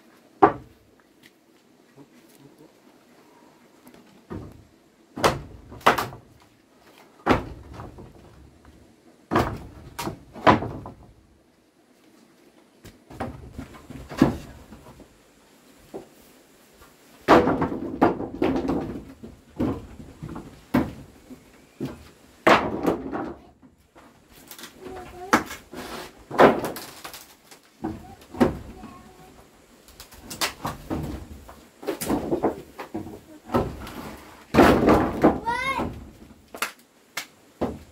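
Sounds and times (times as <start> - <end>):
heavy wooden knocks and thuds: 0.4 - 0.9, 4.3 - 6.4, 7.2 - 11.3, 13.1 - 15.1, 17.2 - 24.1, 26.2 - 26.8, 27.8 - 29.2, 30.6 - 36.4, 37.6 - 37.9.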